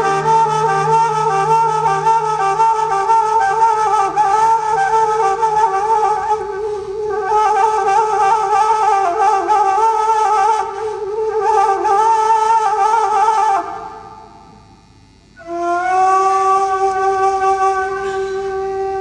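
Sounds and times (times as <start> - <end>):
bamboo flute melody: 0.0 - 13.6, 15.4 - 19.0.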